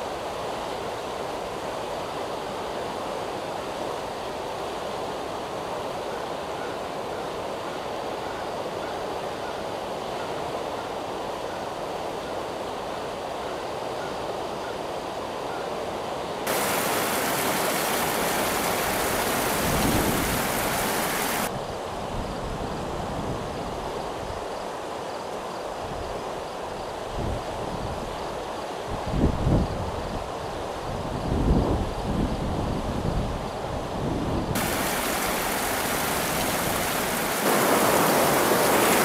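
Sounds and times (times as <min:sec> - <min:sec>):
river rapids rushing: 0:16.5 - 0:21.5, 0:34.6 - 0:39.0
bright hiss: 0:34.6 - 0:39.0.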